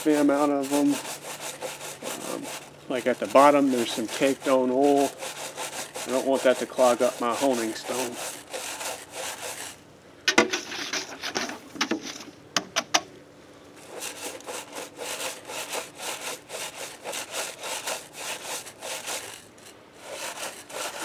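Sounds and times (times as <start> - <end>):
brush scrubbing cylinder bore: 0.0 - 9.8, 13.8 - 21.0
sharp knocks: 10.2 - 10.7.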